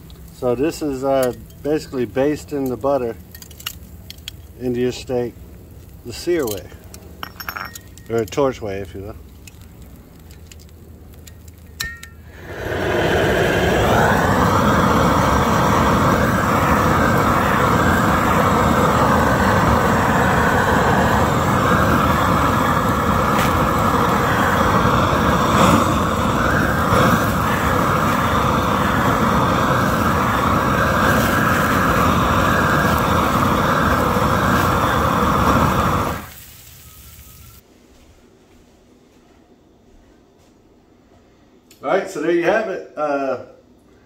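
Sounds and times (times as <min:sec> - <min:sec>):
gas torch roaring hiss: 0:00.0 - 0:03.2, 0:12.0 - 0:37.6.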